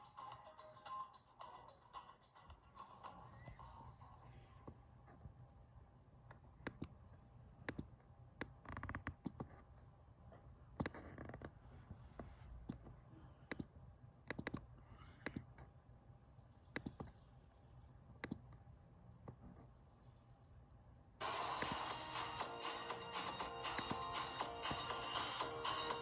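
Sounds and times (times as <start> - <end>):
faint low hum: 0.0 - 26.0
laptop clicks: 14.3 - 14.7.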